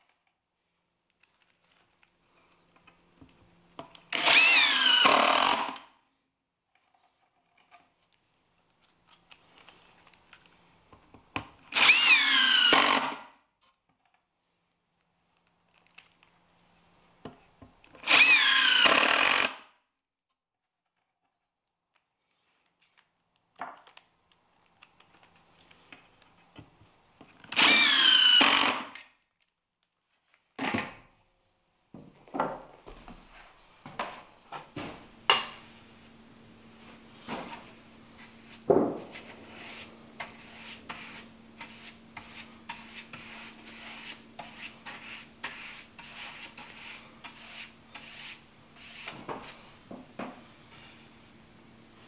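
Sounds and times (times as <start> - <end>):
cordless drill driving screws: 4.1 - 5.8, 11.7 - 13.2, 18.0 - 19.6, 27.5 - 29.0
faint steady hum: 31.1 - 52.0
paintbrush scratching on wood: 39.2 - 49.2.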